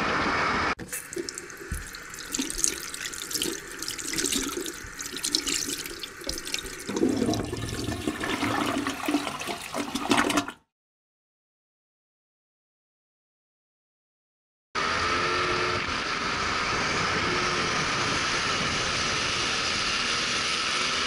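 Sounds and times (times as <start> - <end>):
water rushing and splashing: 0.8 - 10.5.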